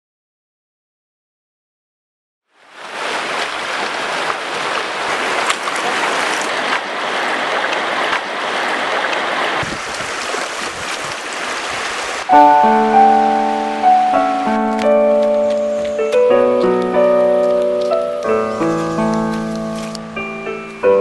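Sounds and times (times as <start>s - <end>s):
river rushing over rocks: 2.6s - 16.2s
piano music: 12.3s - 21.0s.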